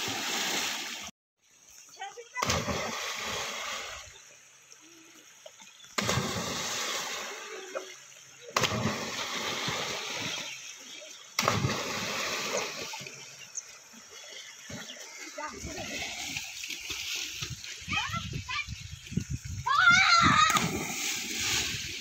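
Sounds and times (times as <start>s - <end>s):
loud water splashes: 0.0s - 1.1s, 2.4s - 4.0s, 6.0s - 7.8s, 8.5s - 10.6s, 11.4s - 13.2s, 19.6s - 22.0s.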